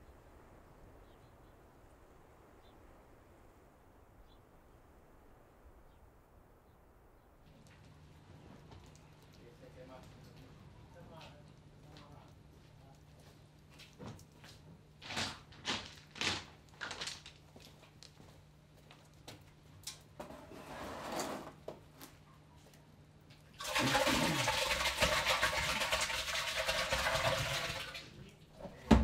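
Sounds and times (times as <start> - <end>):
liquid gushing and splashing: 23.6 - 28.6
bucket knocking and scraping: 23.6 - 29.0.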